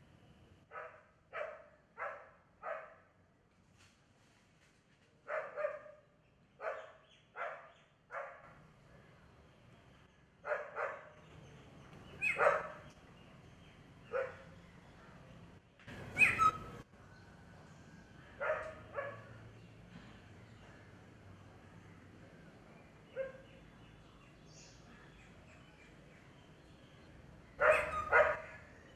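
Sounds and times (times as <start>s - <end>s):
dog barking: 0.7s - 3.1s, 5.3s - 8.5s, 10.4s - 11.2s, 12.2s - 12.9s, 14.1s - 14.5s, 18.4s - 19.3s, 23.1s - 23.5s, 27.6s - 28.6s.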